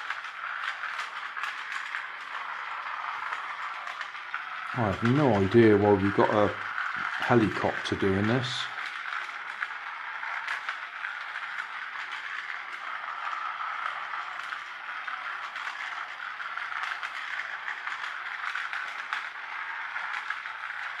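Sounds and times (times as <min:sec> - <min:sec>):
plastic rattling and scraping: 0:00.0 - 0:09.7
toy motor whirring: 0:00.0 - 0:21.0.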